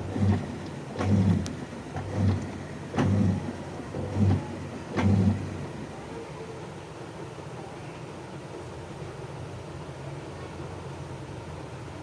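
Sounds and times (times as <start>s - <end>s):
washing machine click: 0.0s - 5.5s
washing machine motor humming: 0.0s - 7.5s.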